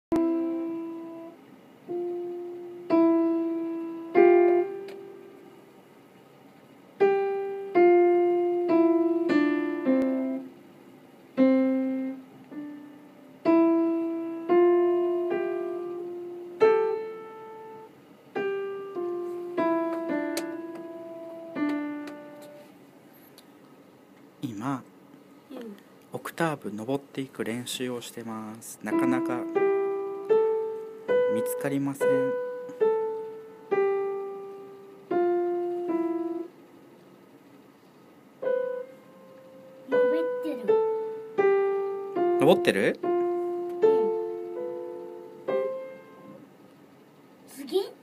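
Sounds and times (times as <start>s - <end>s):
piano single notes ringing: 0.1s - 5.5s, 7.0s - 10.6s, 11.3s - 22.7s, 28.8s - 36.6s, 38.4s - 46.5s.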